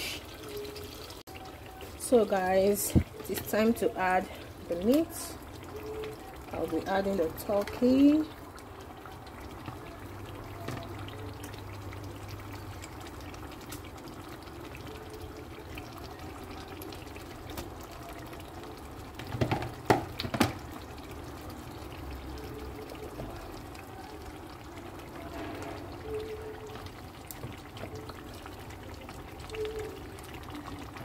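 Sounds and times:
stew simmering and bubbling: 0.0 - 31.0
meat plopping into pot: 19.2 - 20.7.

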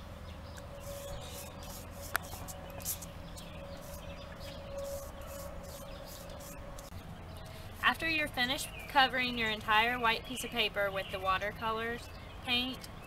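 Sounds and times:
paintbrush strokes on paper: 0.8 - 7.0, 7.7 - 9.5.

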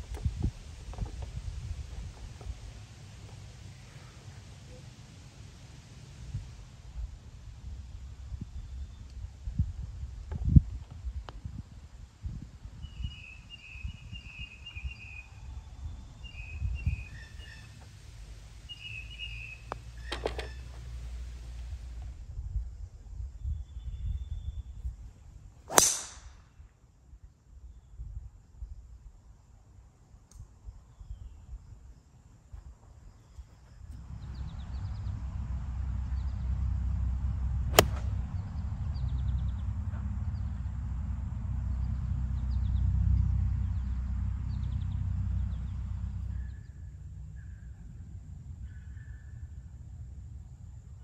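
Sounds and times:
songbird chirping trills: 18.5 - 20.8
golf club striking ball: 25.7 - 26.4, 37.7 - 38.2
sharp click: 37.8 - 38.1.

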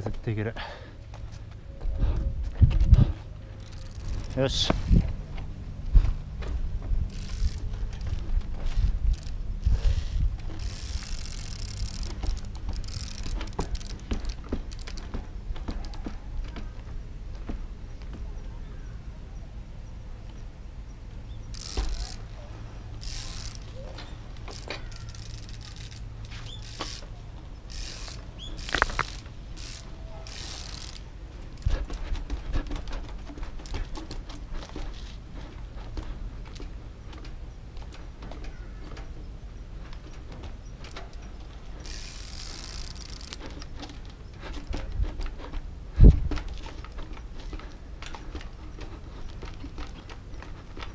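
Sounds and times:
bike hub ratcheting clicks: 3.5 - 5.1, 7.1 - 16.6, 21.3 - 50.9.

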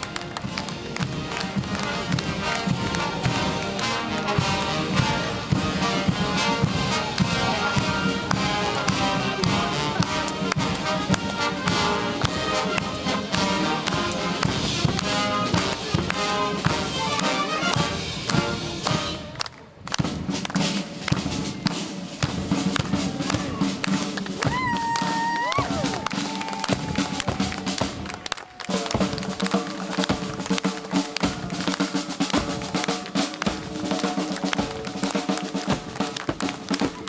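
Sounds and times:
marching band playing brass and drums: 0.0 - 37.0.

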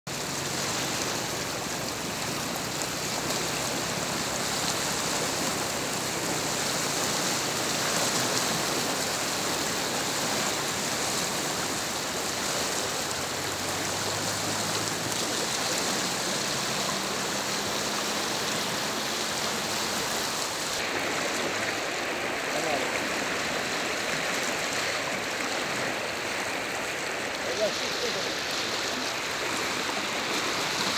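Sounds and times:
floodwater rushing: 0.1 - 30.9.

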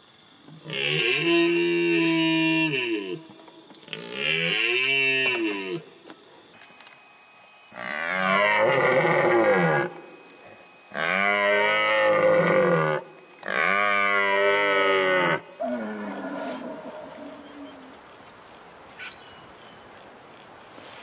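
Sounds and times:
red deer stag roaring: 7.8 - 10.0, 10.9 - 17.8.

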